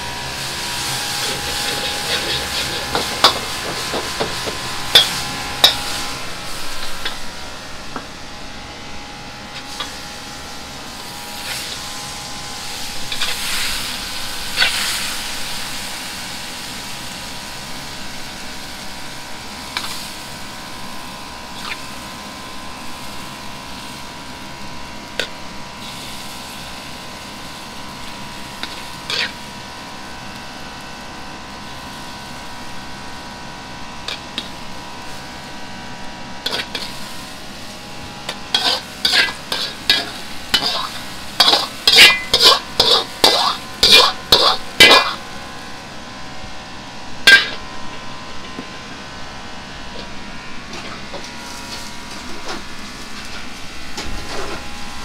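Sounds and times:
kitchen mechanical drone: 0.0 - 55.0
wok ladle clinking on plates: 38.6 - 45.2, 47.3 - 47.6.

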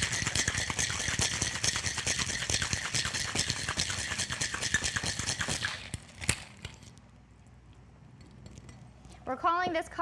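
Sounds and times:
ice rattling in cocktail shaker: 0.0 - 7.0.

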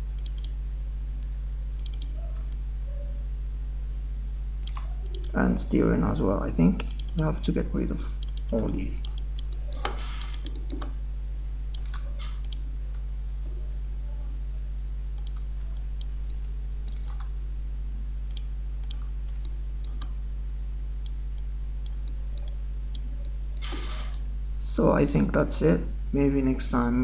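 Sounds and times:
low electrical hum: 0.0 - 27.0
computer mouse clicks: 0.2 - 0.6, 1.8 - 2.6, 4.6 - 5.3, 6.8 - 7.2, 8.2 - 11.0, 11.7 - 12.6, 15.2 - 17.3, 18.3 - 20.2, 21.0 - 24.2.

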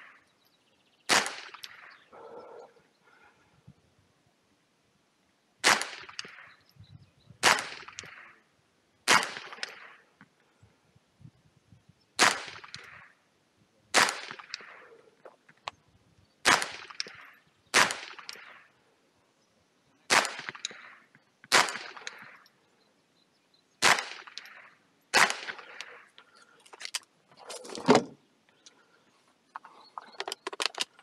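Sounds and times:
rifle shots with echo: 1.1 - 2.0, 5.6 - 6.6, 7.4 - 8.4, 9.0 - 10.0, 12.2 - 13.2, 13.9 - 14.9, 16.4 - 18.7, 20.1 - 22.4, 23.8 - 26.1.

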